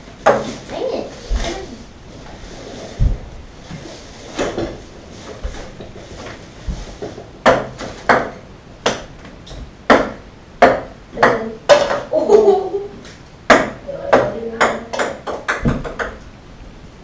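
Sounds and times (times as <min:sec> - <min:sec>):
ping-pong ball bouncing on wood: 0:09.9 - 0:12.1, 0:13.5 - 0:16.2.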